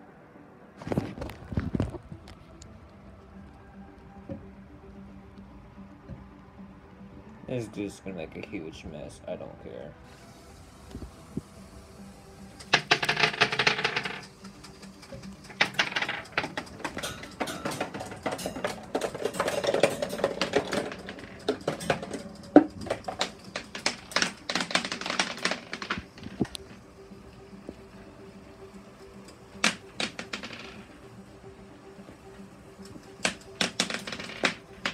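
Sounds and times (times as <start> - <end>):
marbles rattling on plastic track: 12.6 - 26.6, 29.6 - 31.0, 33.2 - 34.9.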